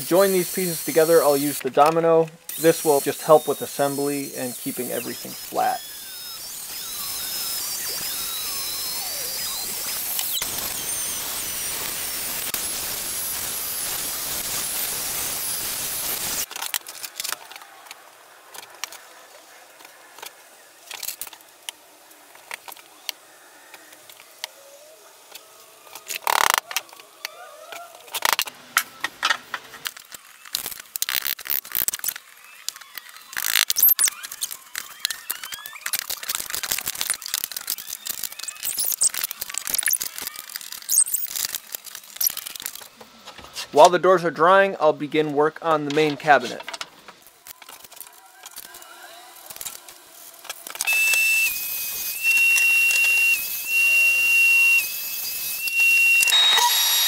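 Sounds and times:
power joiner high whine: 2.5 - 16.4, 50.8 - 57.0.

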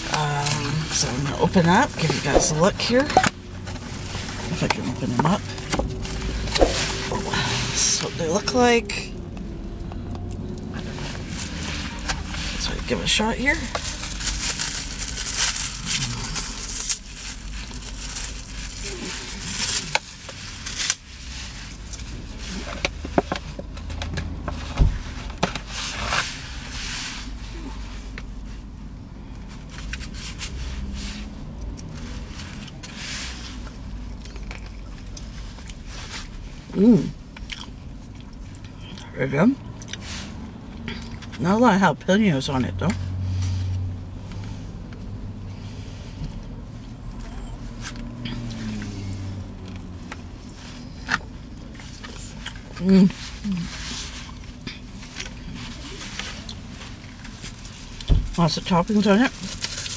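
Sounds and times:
low hum in car cabin: 0.0 - 59.9
wet squishy chewing: 2.0 - 7.8, 33.6 - 36.5, 37.2 - 39.1.

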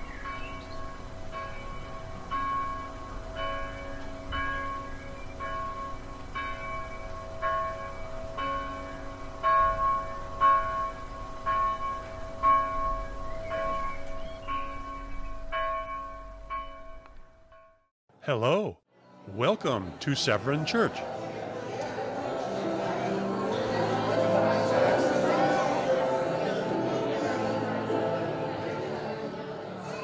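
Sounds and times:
church bell ringing: 0.0 - 17.8.

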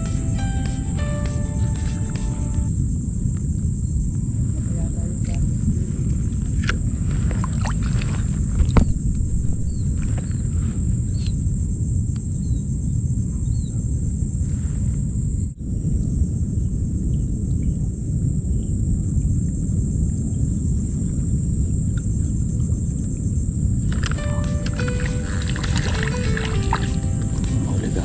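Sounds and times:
wind rumble on microphone: 3.0 - 24.2.

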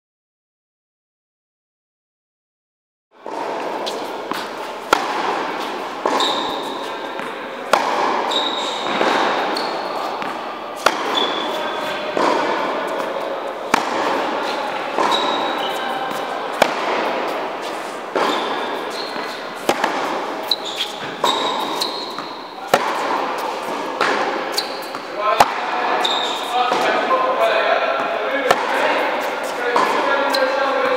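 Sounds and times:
tennis ball hit by racket: 3.2 - 27.2, 28.0 - 30.9.

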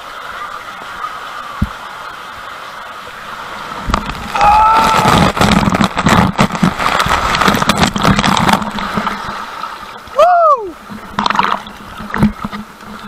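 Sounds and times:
water churning and gurgling: 0.0 - 13.0
water rushing through tube: 0.0 - 13.0
loud splash: 3.3 - 10.2.

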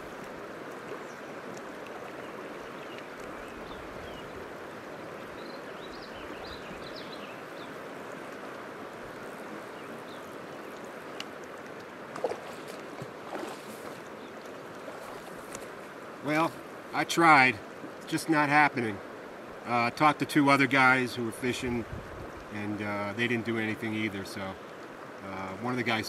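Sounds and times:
river flowing over rocks: 0.0 - 19.7.

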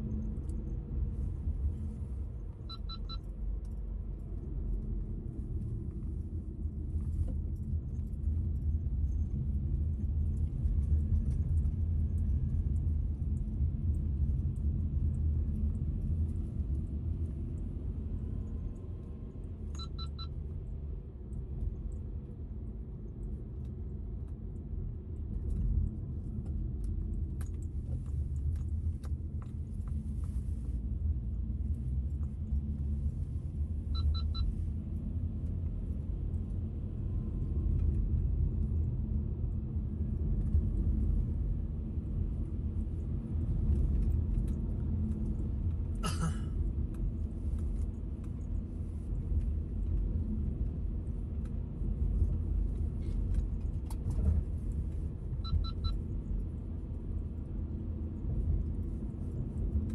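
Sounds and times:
car engine and tyres rumbling: 0.0 - 59.9
double beep: 2.7 - 3.2, 19.8 - 20.3, 34.0 - 34.5, 55.4 - 55.9.

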